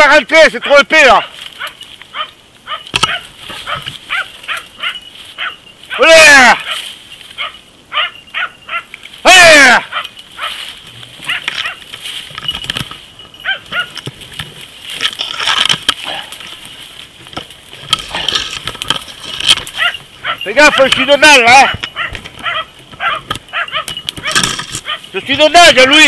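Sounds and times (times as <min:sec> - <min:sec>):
twigs and leaves crackling: 0:00.0 - 0:26.0
dog barking: 0:01.2 - 0:06.0, 0:07.4 - 0:08.9, 0:09.9 - 0:10.6, 0:11.2 - 0:11.8, 0:13.4 - 0:14.0, 0:19.7 - 0:21.0, 0:21.6 - 0:25.1
dog baying: 0:01.2 - 0:06.0, 0:07.4 - 0:08.9, 0:09.8 - 0:10.6, 0:11.2 - 0:11.9, 0:13.4 - 0:14.0, 0:19.5 - 0:25.2.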